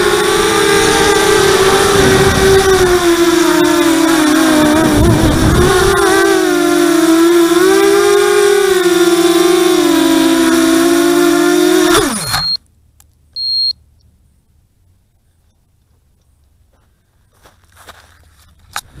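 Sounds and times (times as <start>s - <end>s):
quadcopter motors whining: 0.0s - 12.6s, 18.7s - 19.0s
short high beeps: 12.1s - 12.6s, 13.4s - 13.8s.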